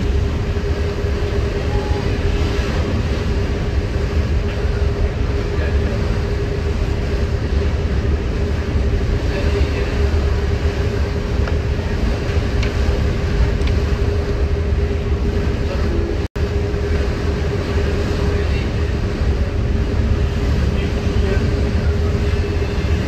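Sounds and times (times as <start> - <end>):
ferry engine droning: 0.0 - 23.0
water wash: 0.0 - 23.0.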